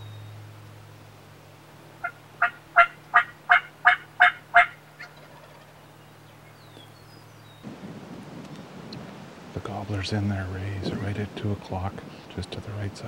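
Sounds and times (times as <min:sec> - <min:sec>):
wild turkey yelping: 0:02.0 - 0:05.8.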